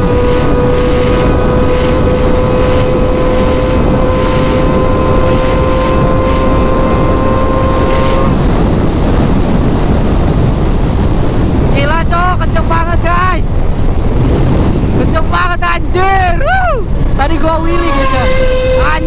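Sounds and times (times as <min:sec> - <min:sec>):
motorcycle engine whining: 0:00.0 - 0:11.6
wind rush on microphone: 0:00.0 - 0:19.0.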